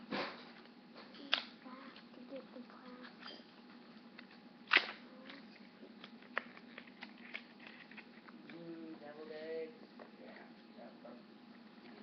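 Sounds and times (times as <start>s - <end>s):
faint room hum: 0.0s - 12.0s
plastic candy wrapper crinkling: 4.2s - 8.6s.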